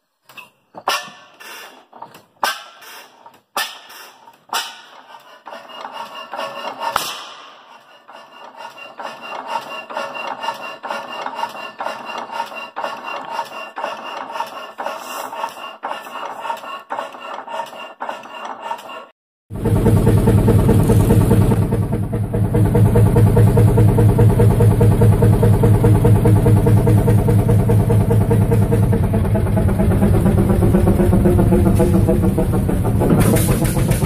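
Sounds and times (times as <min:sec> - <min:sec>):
engine bangs: 0:19.5 - 0:34.0
engine running with fast clatter: 0:19.5 - 0:34.0.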